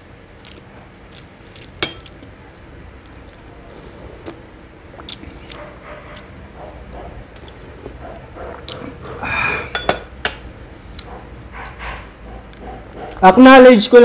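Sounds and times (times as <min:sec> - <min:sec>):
glass dishes and spoon clinking: 0:01.8 - 0:02.2, 0:09.2 - 0:10.4.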